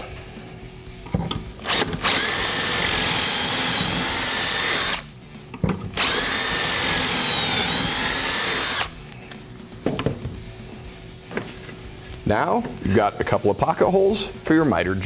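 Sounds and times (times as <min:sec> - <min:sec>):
drill whine: 0:01.6 - 0:05.1, 0:06.0 - 0:09.0.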